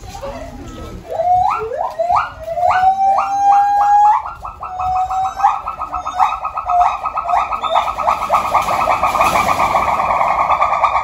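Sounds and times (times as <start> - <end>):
animal call with trill: 0.2 - 11.0.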